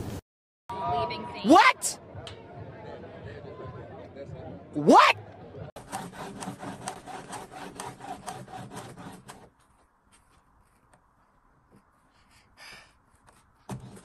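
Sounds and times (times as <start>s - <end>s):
baby's teeth scraping plastic: 5.8s - 10.8s.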